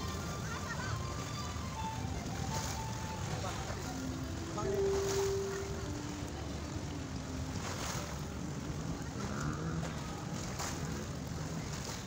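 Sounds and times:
small waves washing in: 0:00.0 - 0:12.0
brief water splashes: 0:09.0 - 0:12.0.

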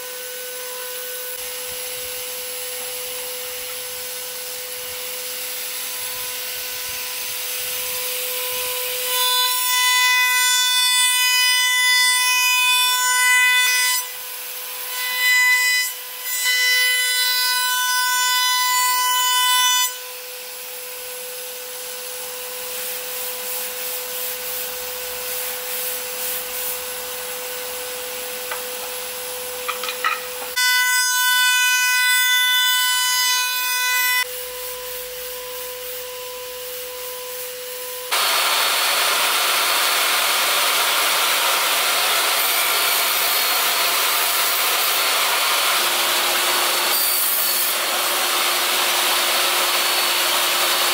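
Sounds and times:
table saw running: 0:27.2 - 0:31.0, 0:38.1 - 0:50.9
router spindle whining: 0:38.1 - 0:46.9.

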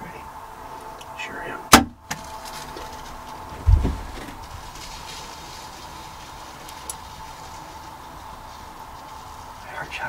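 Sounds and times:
faint thin whine: 0:00.0 - 0:10.0
low background rumble: 0:00.0 - 0:10.0
dull deep bump: 0:03.5 - 0:04.4.

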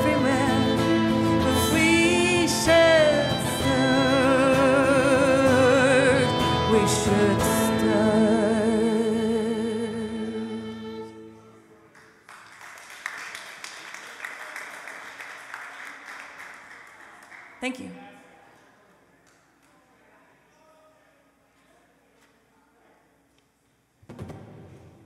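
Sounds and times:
woman singing: 0:00.0 - 0:10.8
violin: 0:00.0 - 0:11.7
acoustic guitar: 0:00.0 - 0:11.9
audience applause: 0:11.9 - 0:17.7.

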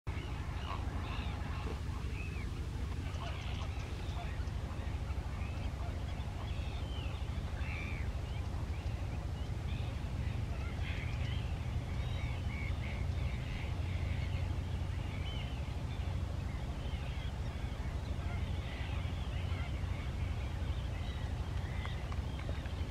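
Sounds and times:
birds chirping and calling: 0:00.1 - 0:22.9
steady low rumble: 0:00.1 - 0:22.9.

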